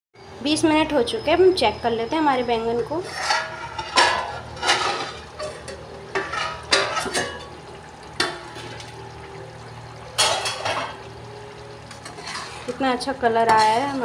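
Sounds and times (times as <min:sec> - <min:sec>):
curry sizzling: 0:01.1 - 0:14.0
metal lid clanking on pan rim: 0:03.0 - 0:07.6, 0:08.2 - 0:08.9, 0:10.2 - 0:11.1, 0:11.9 - 0:12.8, 0:13.4 - 0:14.0.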